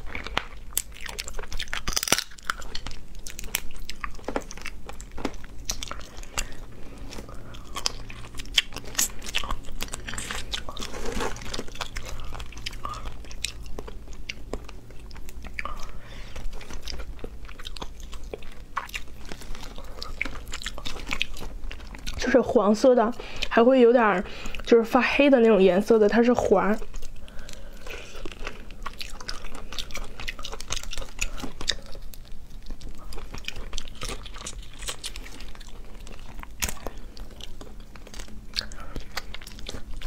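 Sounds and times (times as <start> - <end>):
biting and chewing: 0.0 - 22.4, 26.8 - 40.0
shellfish shells cracking: 0.1 - 6.6.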